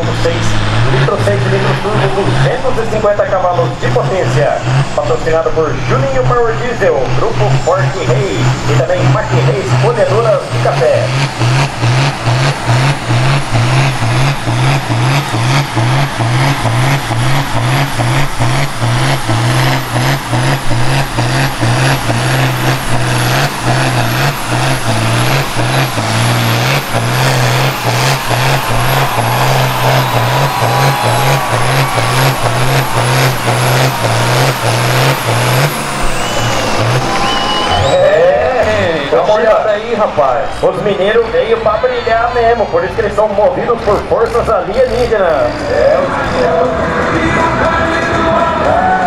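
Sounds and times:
tractor diesel engine at full power: 0.0 - 49.0
high whine: 15.2 - 39.8.

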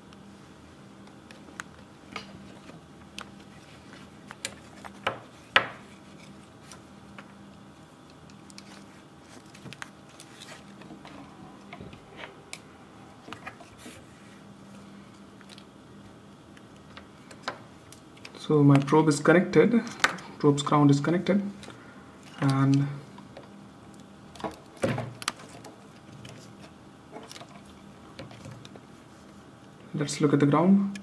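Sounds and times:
faint steady hum: 0.0 - 31.0
small clicks and rubbing: 6.0 - 12.6.

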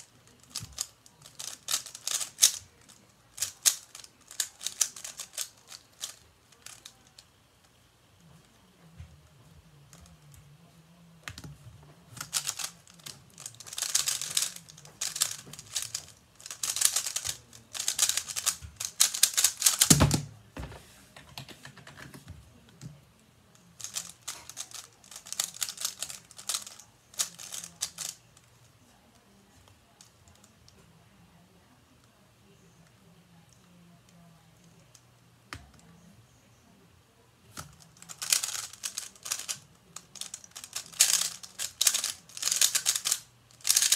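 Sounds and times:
puzzle cube clicking fast: 0.3 - 7.2, 12.2 - 20.2, 23.8 - 28.2, 37.6 - 43.9.

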